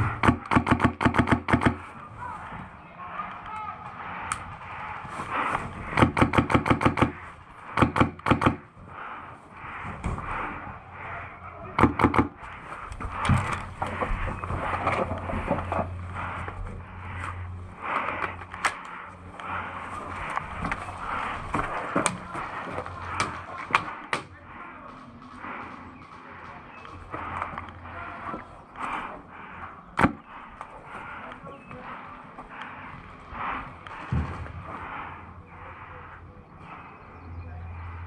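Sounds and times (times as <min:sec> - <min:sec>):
airsoft guns firing rapid bursts: 0:00.1 - 0:01.9, 0:05.8 - 0:08.7, 0:11.8 - 0:12.4.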